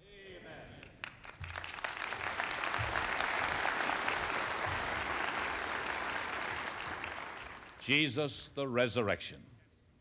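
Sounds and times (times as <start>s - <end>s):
congregation applauding: 0.8s - 8.0s.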